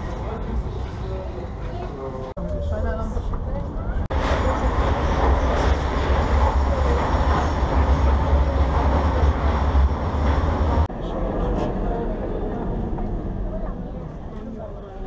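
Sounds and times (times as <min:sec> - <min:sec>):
metro train rumble inside car: 0:03.1 - 0:14.9.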